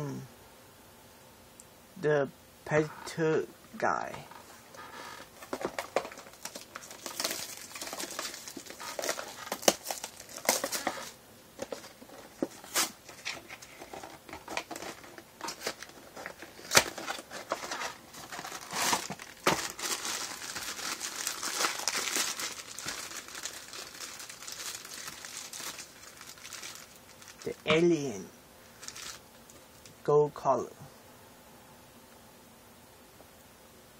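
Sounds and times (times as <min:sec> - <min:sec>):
foil bag crinkling and tearing: 0:04.3 - 0:29.2
cardboard box opened: 0:04.4 - 0:25.9.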